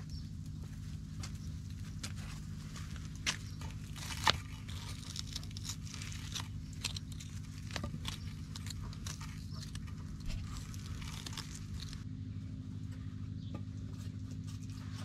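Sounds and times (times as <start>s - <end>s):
knife scraping charred skin: 2.1s - 12.0s.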